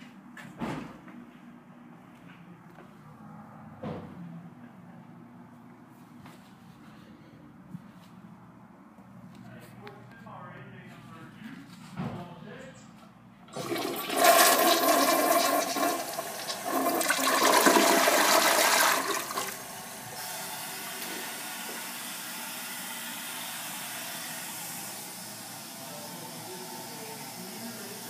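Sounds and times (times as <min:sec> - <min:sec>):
toilet flushing: 0:13.5 - 0:23.4.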